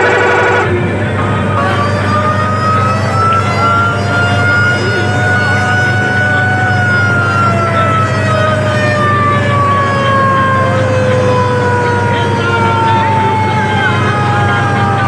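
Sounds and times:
bus horn long blast: 0.0s - 10.2s
engine drone: 0.0s - 15.0s.

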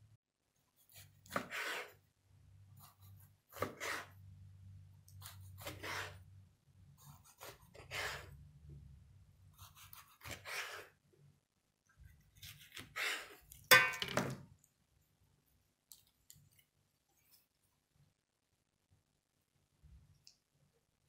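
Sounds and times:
knife cutting on wooden board: 0.8s - 2.0s, 2.8s - 4.2s, 5.1s - 6.2s, 7.1s - 8.3s, 9.6s - 11.0s
knife scrape or knock: 0.9s - 2.0s, 3.6s - 4.2s, 5.6s - 6.2s, 7.4s - 8.3s, 9.7s - 11.0s.

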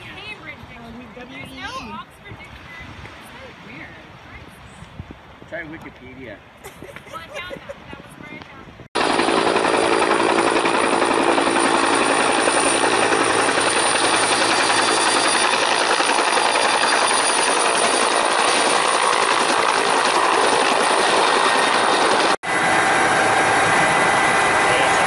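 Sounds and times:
helicopter rotor and turbine: 6.7s - 25.0s.

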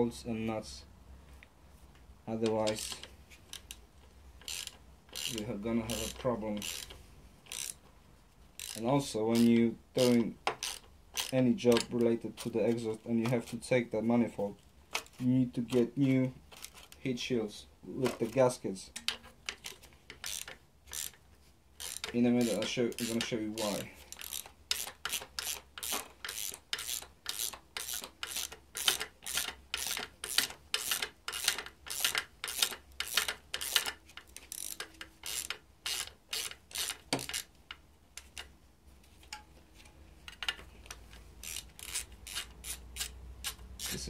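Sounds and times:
socket ratchet clicking: 2.4s - 3.8s, 4.4s - 7.8s, 8.6s - 12.1s, 19.0s - 21.2s, 21.8s - 38.5s, 40.3s - 44.0s.

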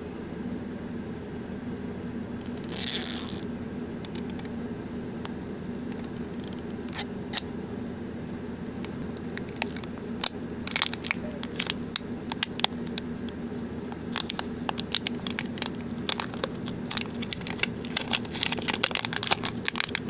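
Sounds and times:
plastic wrapper tearing: 2.5s - 3.4s, 10.6s - 13.0s, 14.1s - 20.0s
plastic wrapper crinkling: 8.8s - 13.0s, 14.0s - 20.0s.

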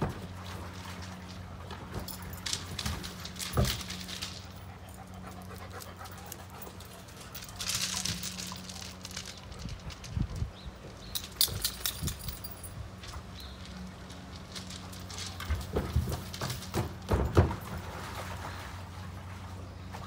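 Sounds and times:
knocks and thump on tank: 15.7s - 17.8s.

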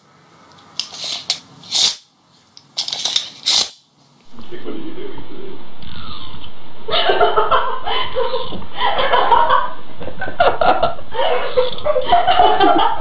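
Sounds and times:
person laughing: 6.9s - 13.0s.

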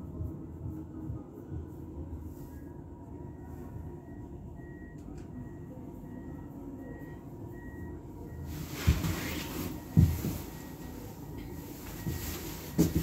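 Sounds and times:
cable car low rumble: 0.0s - 13.0s
heavy thump: 9.9s - 10.6s, 12.0s - 13.0s.

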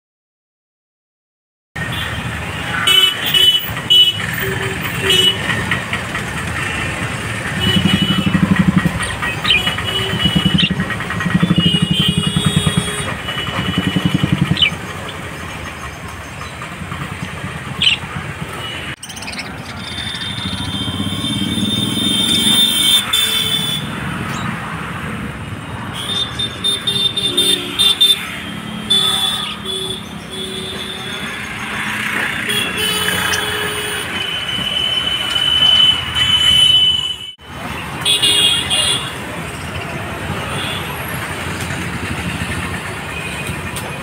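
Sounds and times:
street traffic engines: 1.8s - 44.0s
small birds chirping: 9.2s - 11.0s, 13.8s - 18.1s, 19.0s - 20.8s.

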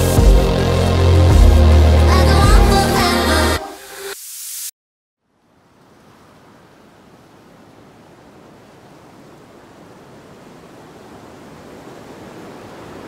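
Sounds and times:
ocean waves washing on beach: 5.5s - 13.0s.

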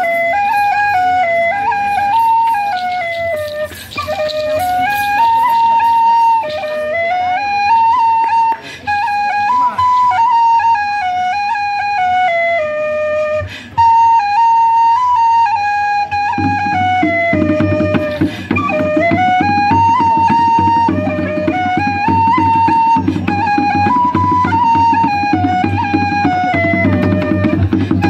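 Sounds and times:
flute melody: 0.0s - 28.0s
hand drum beat: 2.0s - 6.9s, 16.3s - 28.0s.

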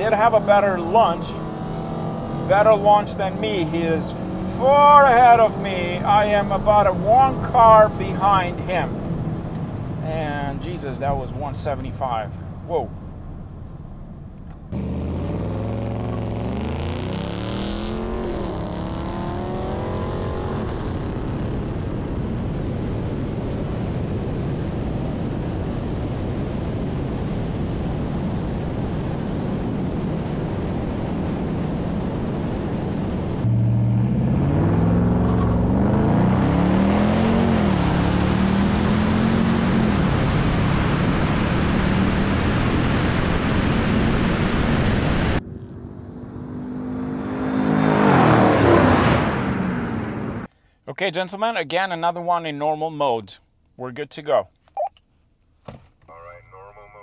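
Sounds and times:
car engine accelerating hard: 0.0s - 24.5s, 31.0s - 50.5s
wind and road rush: 0.0s - 50.6s.

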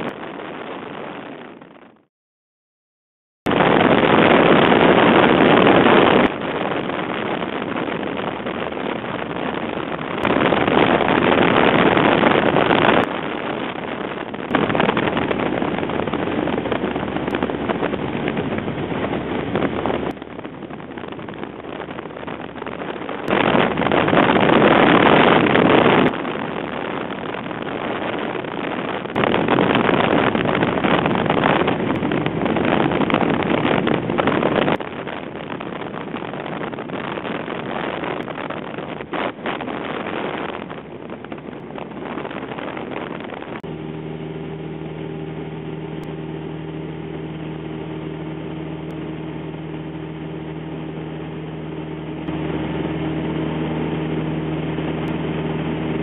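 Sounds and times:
wind rushing past microphone: 0.0s - 2.1s, 3.5s - 56.0s
light aircraft engine drone: 43.6s - 56.0s.

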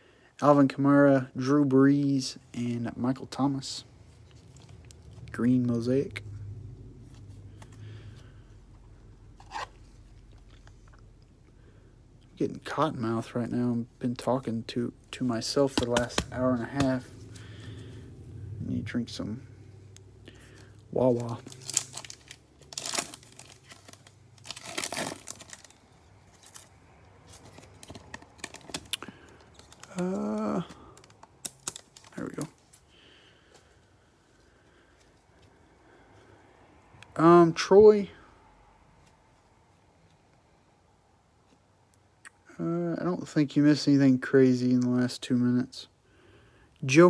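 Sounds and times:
plastic sleeve rustling and scraping: 9.4s - 10.8s, 20.9s - 32.8s
foil pack ripping: 21.0s - 26.7s, 27.4s - 32.5s
foil wrapper crinkling: 21.0s - 32.8s.

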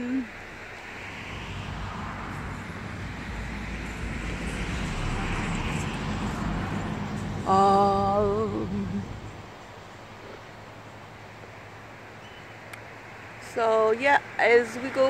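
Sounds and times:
passing vehicle rumble: 0.0s - 15.0s
long wavering voiced note: 1.6s - 9.4s.

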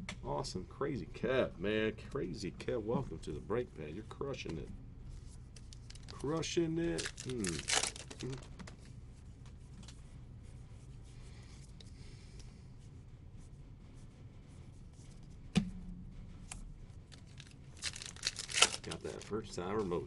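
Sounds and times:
cards and wrappers rustling: 5.2s - 10.0s, 17.1s - 20.0s.

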